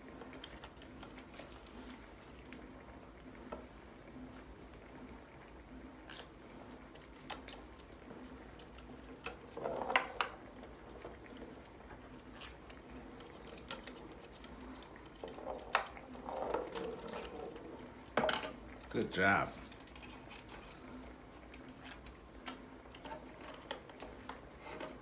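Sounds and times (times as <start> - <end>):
small ball knocking: 8.9 - 11.6, 13.5 - 18.9.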